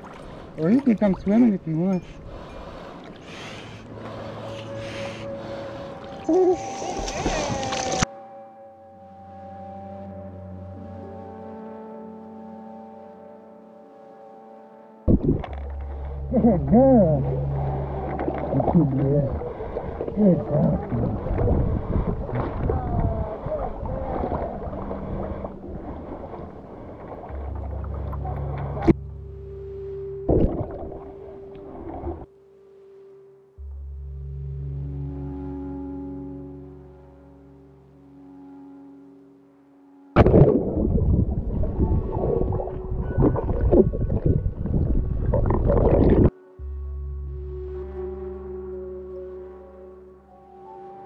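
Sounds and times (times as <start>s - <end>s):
water sloshing and lapping: 0.0s - 8.1s, 15.1s - 29.0s, 40.2s - 46.4s
soft background music: 0.0s - 51.0s.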